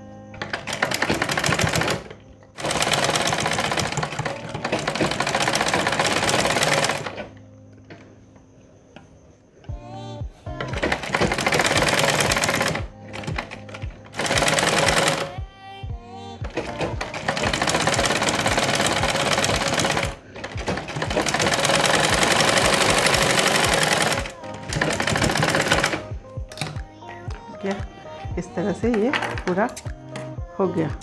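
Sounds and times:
sewing machine stitching: 0.4s - 7.3s, 10.6s - 15.3s, 16.4s - 26.1s.

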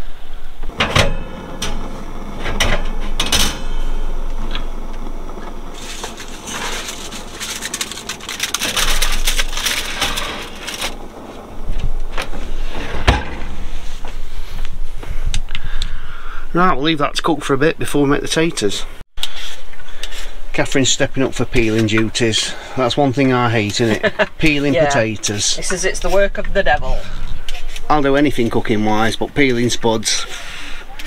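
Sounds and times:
tin foil crinkling: 5.6s - 11.8s.

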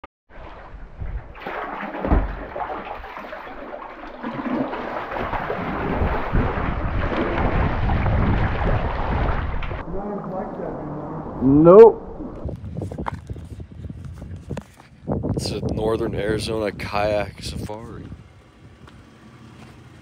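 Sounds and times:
thumping on microphone: 2.0s - 2.5s.

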